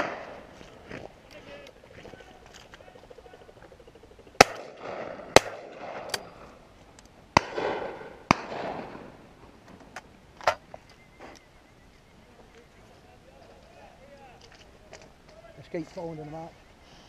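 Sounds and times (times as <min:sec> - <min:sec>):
distant gunshots: 0:00.0 - 0:00.5, 0:04.4 - 0:06.4, 0:07.4 - 0:09.2
shotgun shots: 0:00.0 - 0:00.5, 0:04.4 - 0:06.3, 0:07.4 - 0:09.1.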